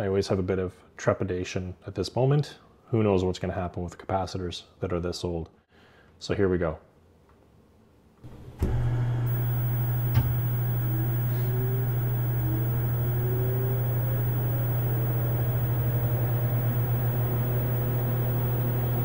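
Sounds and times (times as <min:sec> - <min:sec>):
computer humming: 0:08.3 - 0:19.0
power switch click: 0:08.3 - 0:19.0
whine rising in pitch: 0:08.3 - 0:19.0.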